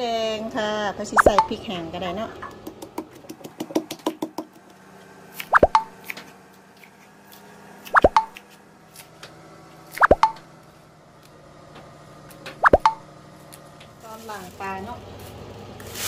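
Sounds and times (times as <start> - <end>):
cartoon plop sound effect: 1.2 - 1.5, 5.5 - 5.9, 8.0 - 8.4, 10.0 - 10.4, 12.6 - 13.0
knife tapping on wooden board: 2.6 - 4.6.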